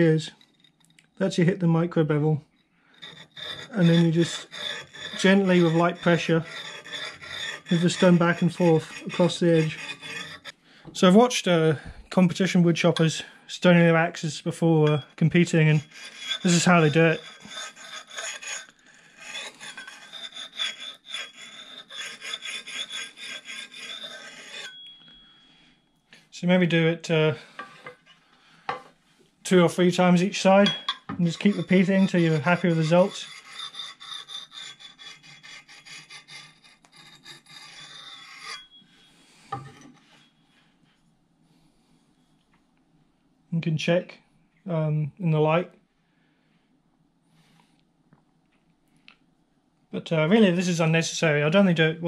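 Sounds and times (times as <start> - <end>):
stone scraping axe edge: 3.0 - 10.6, 14.8 - 25.2, 30.6 - 38.8.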